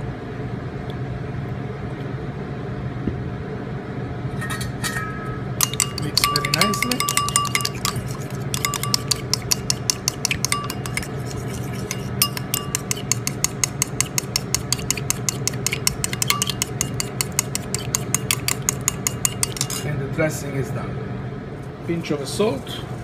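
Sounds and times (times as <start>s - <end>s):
metal spoon whisking in bowl: 5.6s - 19.9s.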